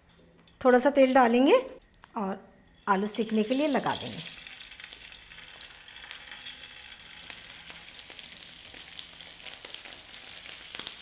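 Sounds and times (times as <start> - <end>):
potatoes sizzling in hot oil: 2.8 - 11.0.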